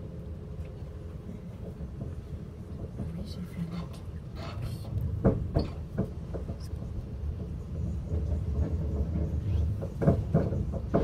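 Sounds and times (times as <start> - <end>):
vehicle cabin rumble: 0.0 - 11.0
knocks and rattles: 4.4 - 11.0.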